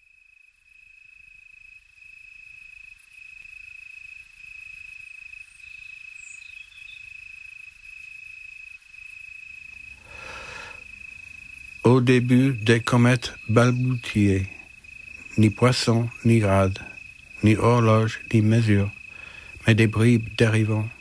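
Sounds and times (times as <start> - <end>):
cricket trilling: 0.0 - 21.0.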